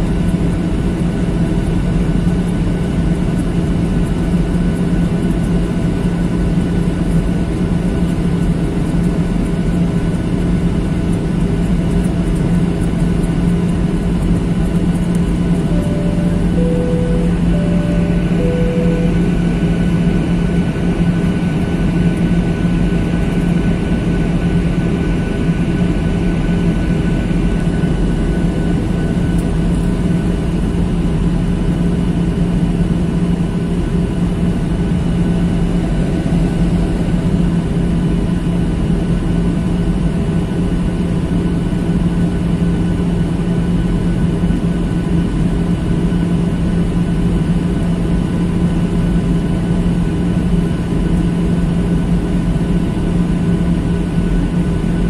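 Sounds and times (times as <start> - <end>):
jet cabin engine drone: 0.0 - 55.0
faint steady whining tones: 14.1 - 20.9.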